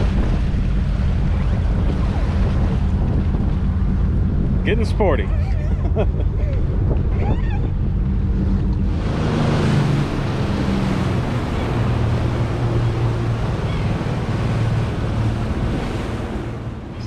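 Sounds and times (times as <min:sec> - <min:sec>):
boat engine hum: 0:00.0 - 0:17.0
water rushing: 0:00.0 - 0:17.0
wind on microphone: 0:00.0 - 0:17.0.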